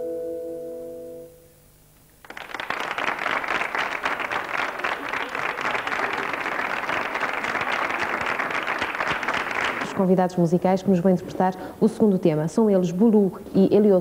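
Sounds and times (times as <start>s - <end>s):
audience applause: 2.2s - 10.1s.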